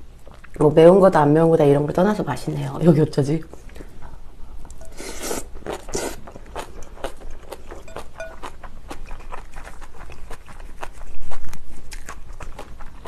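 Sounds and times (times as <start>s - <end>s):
wet chewing and crunching: 4.7s - 13.0s.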